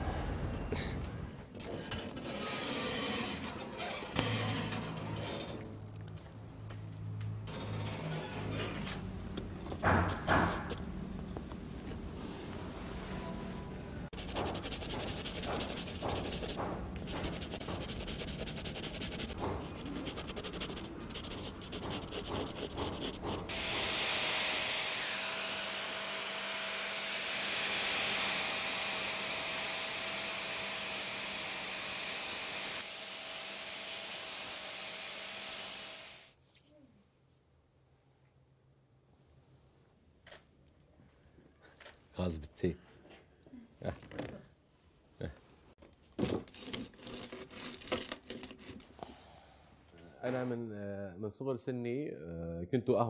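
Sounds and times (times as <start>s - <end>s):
pencil rubbing on paper: 14.1s - 23.5s
small motor tool whining: 23.5s - 36.3s.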